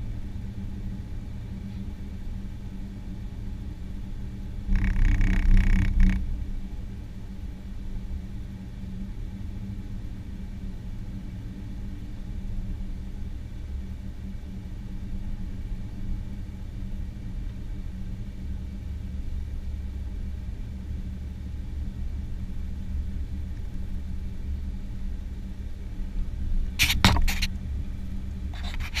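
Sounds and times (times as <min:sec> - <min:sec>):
vehicle engine and road rumble: 0:00.0 - 0:29.0
sharp clicks or rattles: 0:04.7 - 0:06.2, 0:26.8 - 0:27.5.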